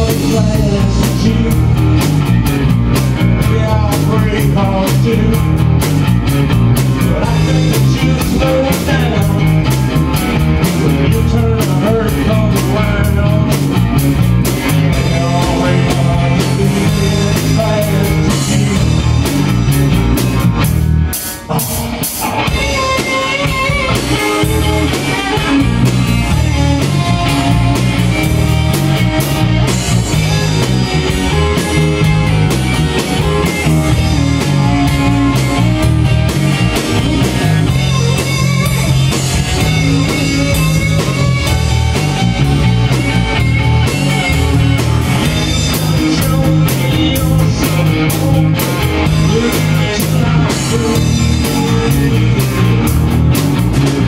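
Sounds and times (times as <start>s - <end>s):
electric guitar: 0.0s - 54.0s
rock band playing: 0.0s - 54.0s.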